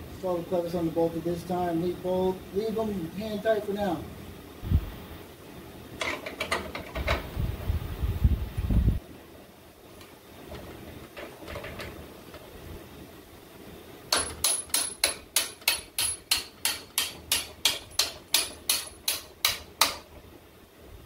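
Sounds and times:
sharp metallic clicks of hand tool: 0:14.1 - 0:20.0.

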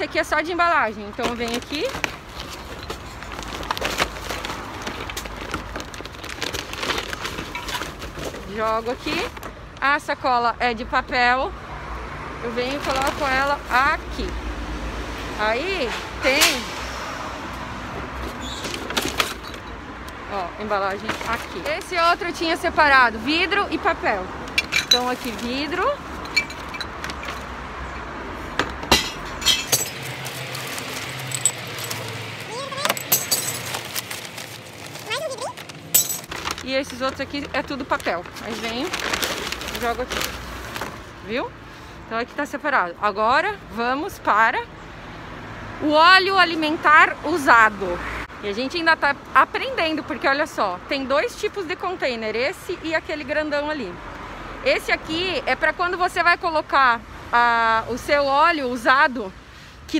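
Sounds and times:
traffic hum: 0:00.0 - 0:59.9
paper bag crackling and rustling: 0:01.1 - 0:09.5, 0:12.7 - 0:13.8, 0:24.9 - 0:27.5, 0:29.6 - 0:41.2
glass bottles clinking and smashing: 0:24.6 - 0:25.2, 0:26.2 - 0:27.5, 0:28.9 - 0:30.3, 0:31.2 - 0:32.2, 0:32.8 - 0:34.0, 0:35.9 - 0:36.4.

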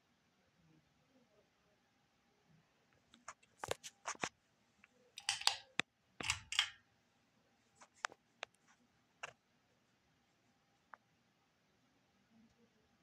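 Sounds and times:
rustling handling noise: 0:03.1 - 0:04.4.

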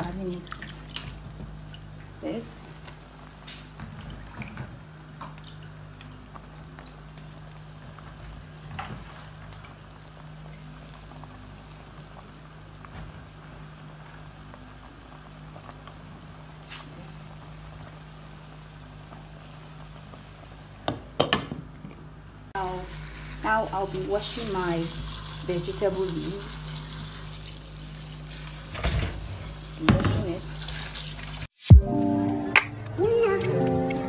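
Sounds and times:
pot bubbling: 0:22.6 - 0:34.0.

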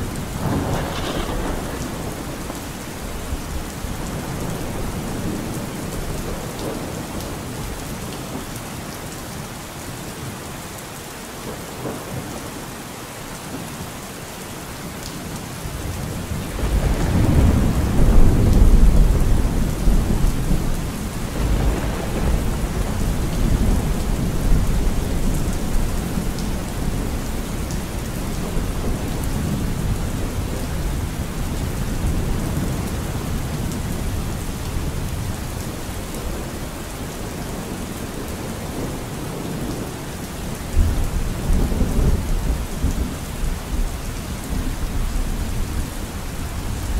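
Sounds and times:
thunder rumbling: 0:00.0 - 0:07.8, 0:15.9 - 0:46.9
steady rain: 0:00.0 - 0:46.9.

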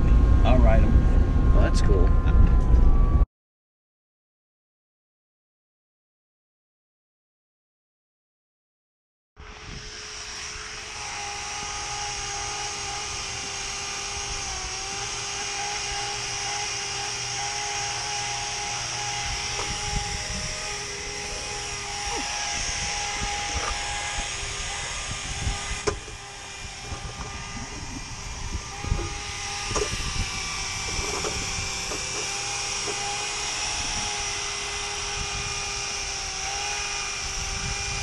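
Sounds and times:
electric polisher motor whine: 0:00.0 - 0:03.2, 0:09.4 - 0:38.0
polisher knocks: 0:14.8 - 0:20.0, 0:25.5 - 0:27.4, 0:28.7 - 0:30.0, 0:30.8 - 0:33.4.

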